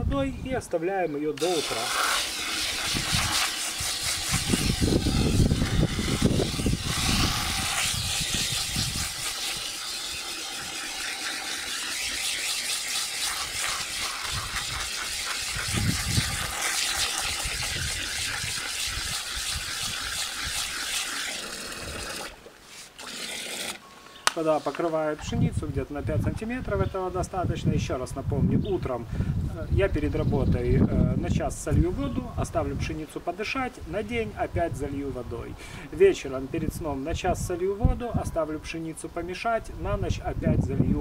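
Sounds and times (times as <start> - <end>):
water splashing into bucket: 1.4 - 23.8.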